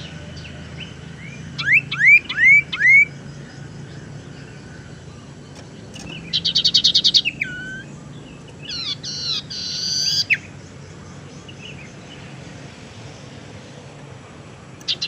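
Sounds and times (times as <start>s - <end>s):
bird rapid trill: 5.4s - 10.6s, 14.8s - 15.0s.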